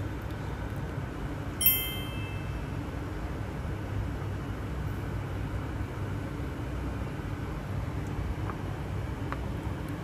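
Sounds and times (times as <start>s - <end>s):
low background noise: 0.0s - 10.0s.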